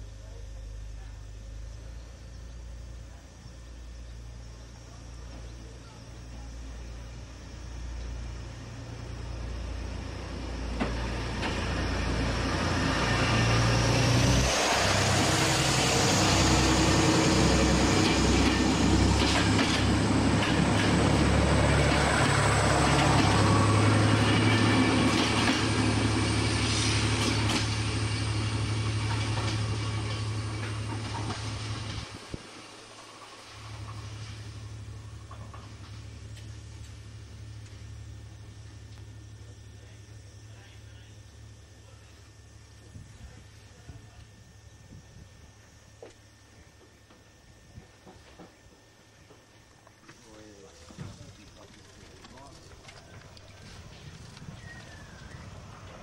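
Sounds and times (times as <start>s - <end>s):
diesel engine drone: 0.0s - 48.2s, 50.1s - 56.0s
train wheels rushing on rail: 8.7s - 37.8s, 47.2s - 56.0s
wheel clicks: 51.1s - 55.4s.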